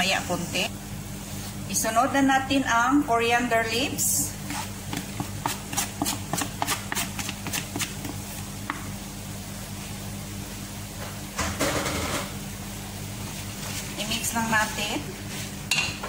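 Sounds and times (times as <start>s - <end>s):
low kitchen hum: 0.0s - 16.0s
wooden spatula tapping and scraping: 4.4s - 8.9s.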